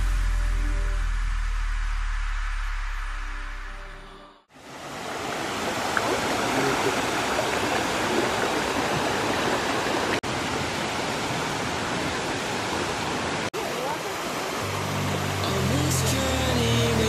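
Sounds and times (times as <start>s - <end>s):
stream rushing over stones: 4.5s - 17.0s
background music: 14.6s - 17.0s.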